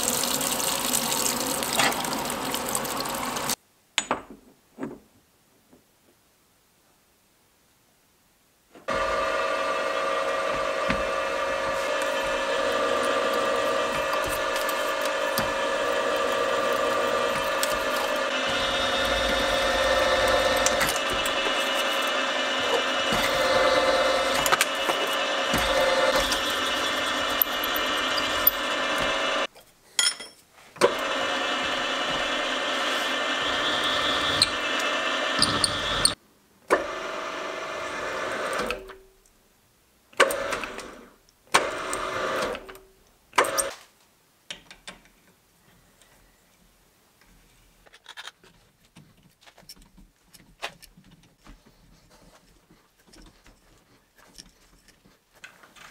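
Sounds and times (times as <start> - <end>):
milling machine motor whine: 8.9 - 29.5, 30.8 - 36.2.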